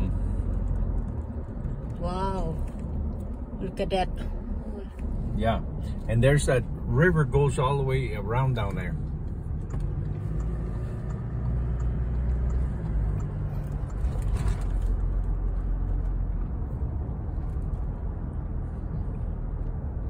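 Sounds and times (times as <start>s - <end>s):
car engine and tyre drone: 0.0s - 20.0s.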